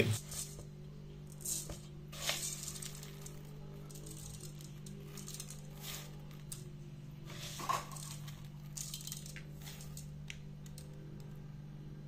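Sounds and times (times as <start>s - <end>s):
steady low hum: 0.0s - 12.0s
rice grains pouring into pot: 1.3s - 10.2s.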